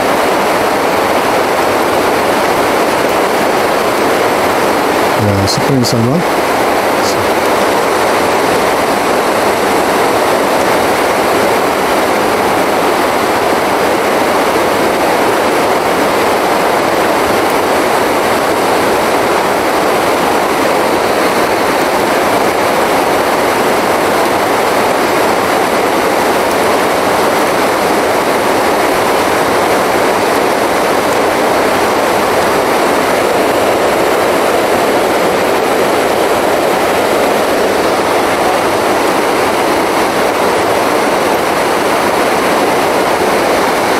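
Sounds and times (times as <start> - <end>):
river rushing over rocks: 0.0 - 43.9.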